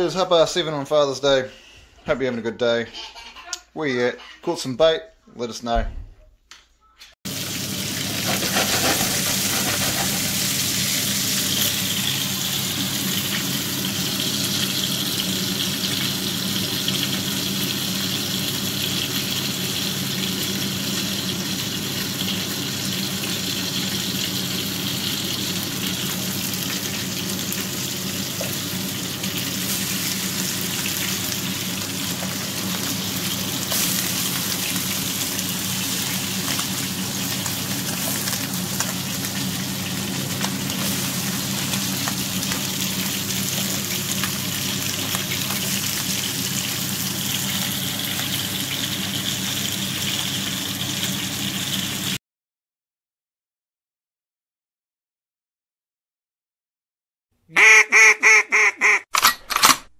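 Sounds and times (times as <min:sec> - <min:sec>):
fritters sizzling in oil: 0:07.3 - 0:52.2.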